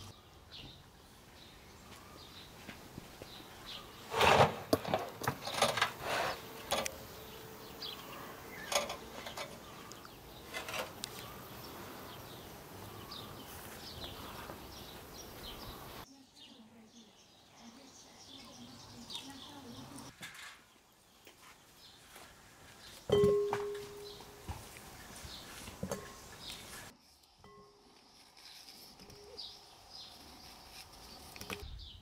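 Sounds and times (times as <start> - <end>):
birds chirping: 0.0 - 28.2, 29.0 - 32.0
insects buzzing: 2.2 - 16.1.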